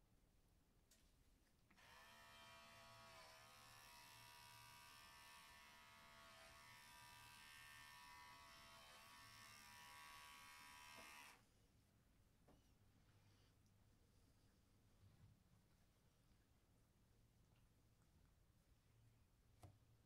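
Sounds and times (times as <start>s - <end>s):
electric pet hair clipper buzzing: 1.8s - 11.4s.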